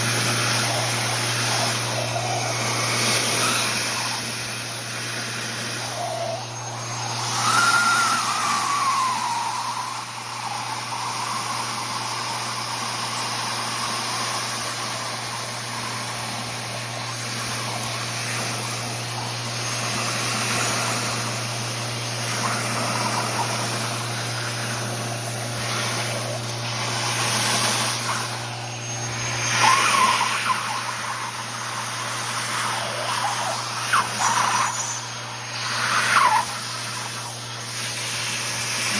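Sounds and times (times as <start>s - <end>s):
low hum: 0.0s - 38.9s
vacuum hose rushing air: 0.0s - 38.9s
whistle rising and falling: 0.1s - 38.9s.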